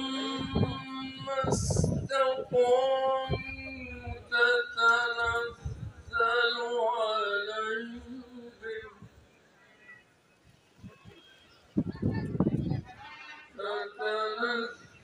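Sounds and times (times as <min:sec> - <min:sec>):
person singing unaccompanied: 0:00.0 - 0:09.1, 0:13.5 - 0:15.0.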